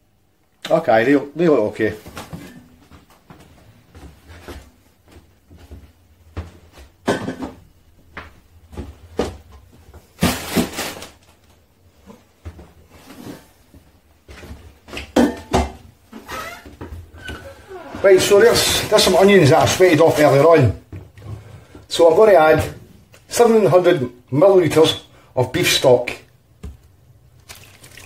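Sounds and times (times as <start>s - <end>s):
kitchen items knocking and clunking: 6.9s - 7.8s, 14.8s - 16.2s.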